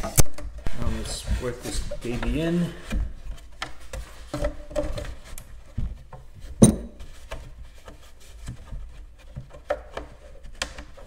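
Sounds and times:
pipe knocking and scraping in crate: 0.0 - 11.0.

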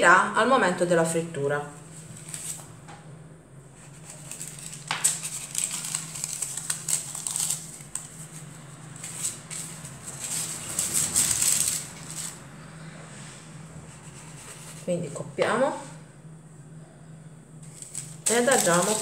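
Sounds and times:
hands working dough: 13.7 - 15.6, 17.6 - 19.0.

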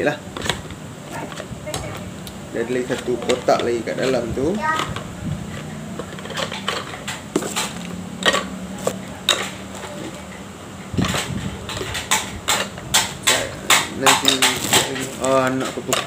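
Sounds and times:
steady low hum: 0.0 - 16.0
plastic items clicking and knocking: 2.7 - 10.0, 11.0 - 16.0.

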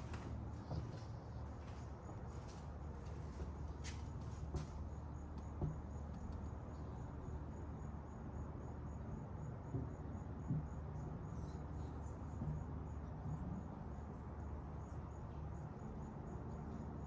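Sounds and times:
insect chirping: 4.4 - 17.0.

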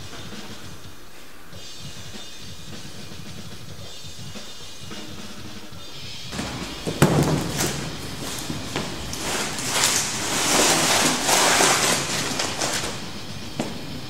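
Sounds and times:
sheet dragging across concrete: 6.3 - 14.0
sheet knocking on concrete: 6.4 - 14.0.

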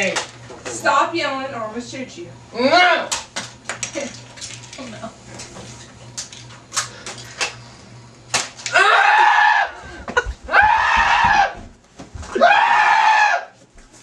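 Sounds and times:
high-pitched screams: 8.7 - 9.8, 10.5 - 11.6, 12.4 - 13.6.

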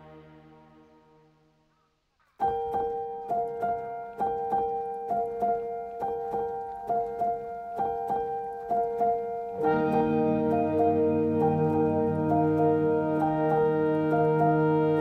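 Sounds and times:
low chords: 9.5 - 15.0
repeating run of notes: 9.5 - 15.0.

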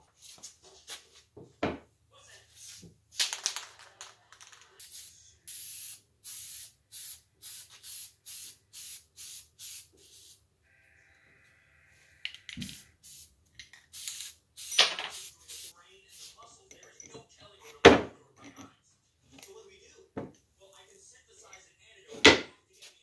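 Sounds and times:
spray paint can hissing: 4.8 - 10.4, 12.6 - 13.3, 13.9 - 16.3.

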